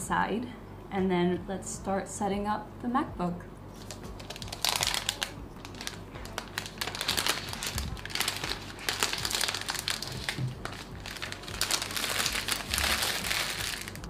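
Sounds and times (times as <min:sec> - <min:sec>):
plastic wrap crinkling: 0:03.7 - 0:14.0.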